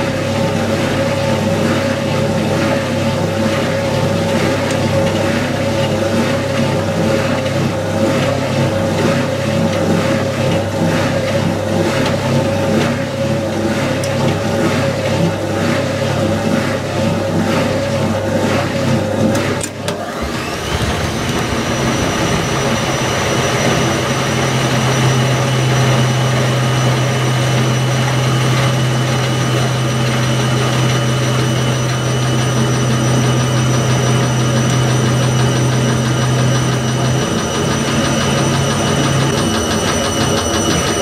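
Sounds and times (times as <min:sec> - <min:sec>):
washing machine spinning: 0:00.0 - 0:41.0.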